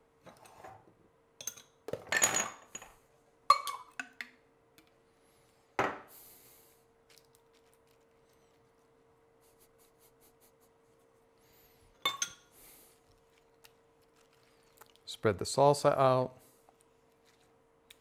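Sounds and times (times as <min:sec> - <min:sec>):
faint steady hum: 0:00.0 - 0:18.0
metal spoon and glass jar clinking: 0:01.4 - 0:02.8, 0:12.0 - 0:12.5.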